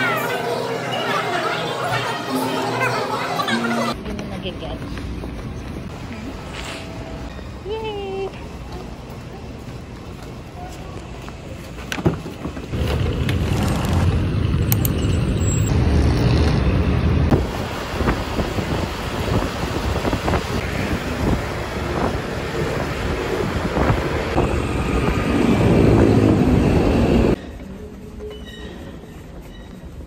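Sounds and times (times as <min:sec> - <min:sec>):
traffic rumble: 0:03.8 - 0:28.3
wind on microphone: 0:17.3 - 0:26.8.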